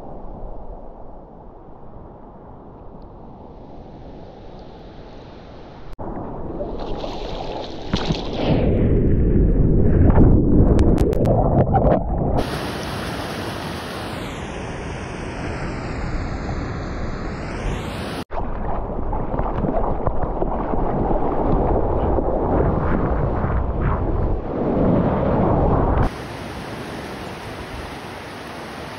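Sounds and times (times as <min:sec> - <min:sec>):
water rushing past board: 0:06.0 - 0:08.8
wind on microphone: 0:06.0 - 0:28.9
sharp water splashes: 0:06.5 - 0:08.6
whitewater churning: 0:12.4 - 0:14.4, 0:26.0 - 0:28.9
breaking surf hiss: 0:12.4 - 0:18.3, 0:26.0 - 0:28.9.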